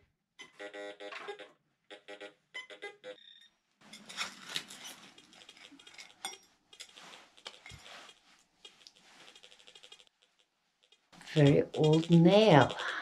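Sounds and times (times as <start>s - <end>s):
small clinks: 3.9s - 10.0s.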